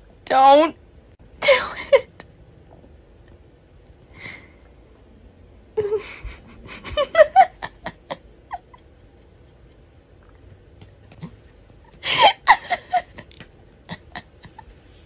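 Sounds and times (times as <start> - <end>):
breath: 4.1 - 4.7
woman giggling: 5.8 - 9.9, 11.8 - 14.9.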